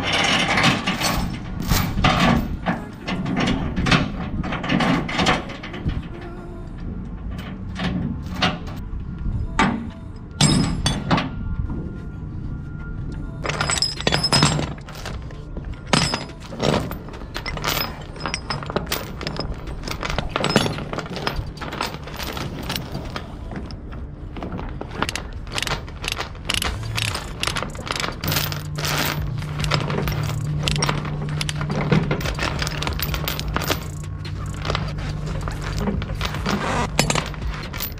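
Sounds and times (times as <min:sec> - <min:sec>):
steel chain clanking on plates: 0:00.0 - 0:06.4, 0:10.4 - 0:11.3, 0:13.4 - 0:37.9.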